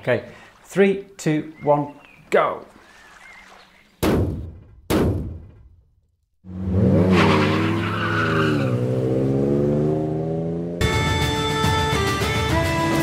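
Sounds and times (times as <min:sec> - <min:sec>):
car engine revving: 0:06.4 - 0:10.9
tyres screeching: 0:07.1 - 0:08.8.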